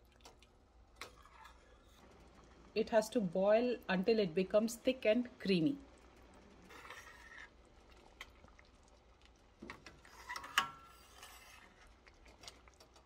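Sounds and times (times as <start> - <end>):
ladle scraping metal pan: 6.7 - 7.5, 9.9 - 12.6.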